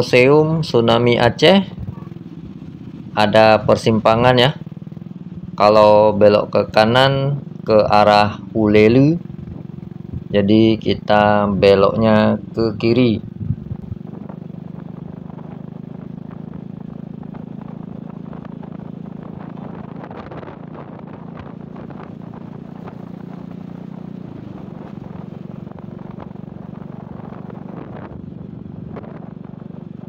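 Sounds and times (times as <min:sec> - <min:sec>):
motorcycle engine running: 0:00.0 - 0:30.0
wind and road noise: 0:00.0 - 0:30.0.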